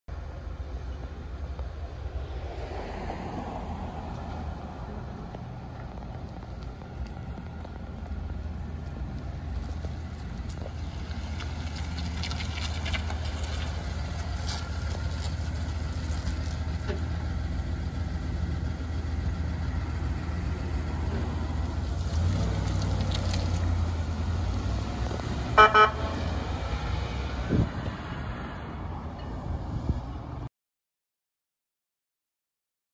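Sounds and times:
engine rumble: 0.1s - 30.5s
car horn honks: 25.6s - 26.2s.

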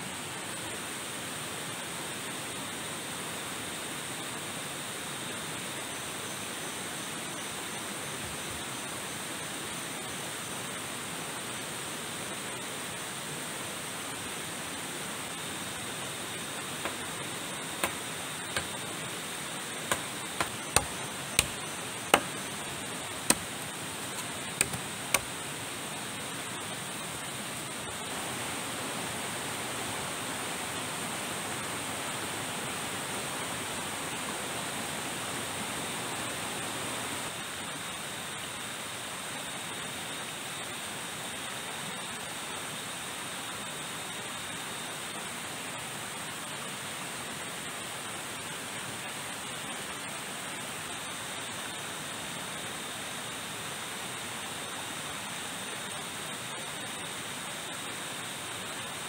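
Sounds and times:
sharp knocks: 16.8s - 19.0s, 19.9s - 22.5s, 23.2s - 25.3s.

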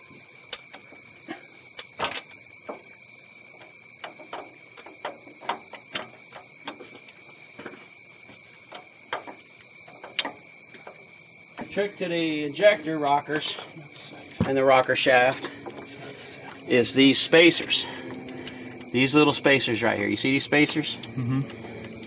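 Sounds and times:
metal clinks and taps: 1.8s - 2.8s, 3.6s - 6.9s.

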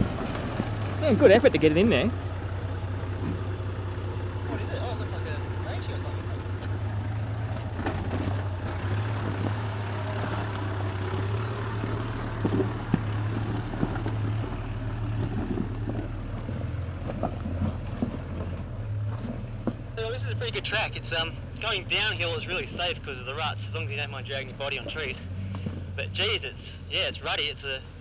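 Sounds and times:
engine running at low revs: 0.0s - 28.0s
rocks knocking on suspension: 11.8s - 19.9s.

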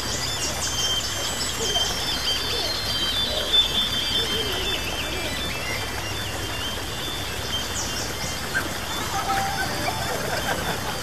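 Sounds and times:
bird calls: 0.0s - 11.0s
ambient music with high tones: 8.6s - 11.0s.

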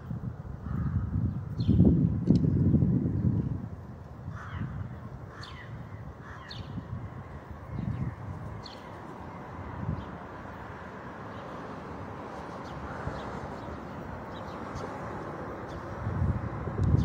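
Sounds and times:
traffic noise: 0.0s - 17.0s.

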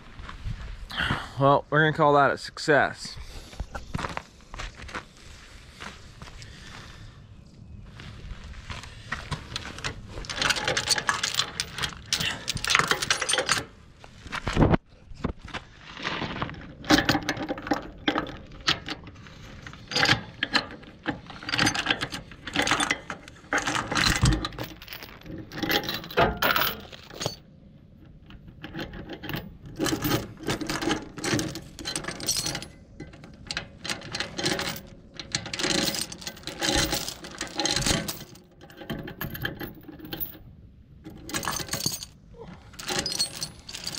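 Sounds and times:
chain clanking: 9.4s - 13.8s, 16.4s - 43.9s
heavy chain rattling on steel: 9.5s - 13.8s, 16.6s - 43.9s.

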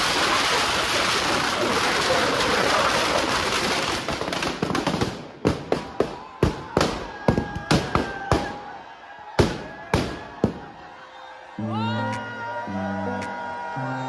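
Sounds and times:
firecrackers crackling and banging: 0.0s - 8.7s, 9.4s - 10.7s.

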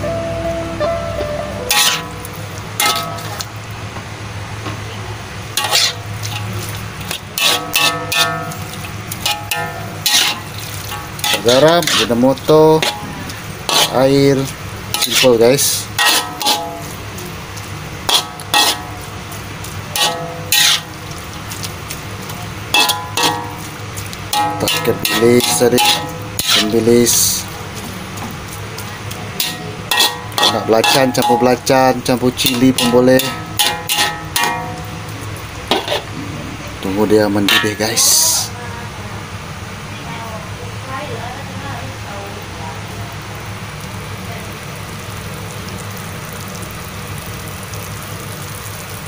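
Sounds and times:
steady low hum: 0.0s - 37.7s
low frying sizzle: 0.0s - 49.0s
metal spatula scraping a wok: 1.7s - 3.4s, 5.6s - 17.0s, 18.0s - 19.1s, 19.9s - 21.7s, 22.7s - 27.4s, 29.4s - 31.7s, 32.4s - 34.9s, 35.7s - 36.1s.

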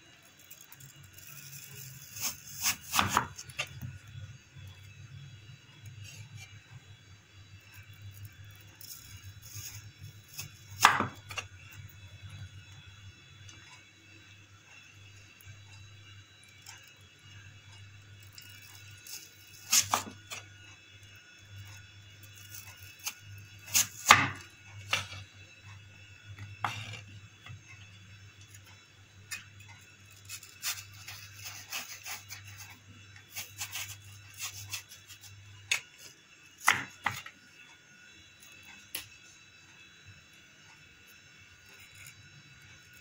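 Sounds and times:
knife slicing raw potato: 1.2s - 4.0s, 8.8s - 11.5s, 18.8s - 20.4s, 22.5s - 25.2s, 26.4s - 27.6s, 30.2s - 37.3s.

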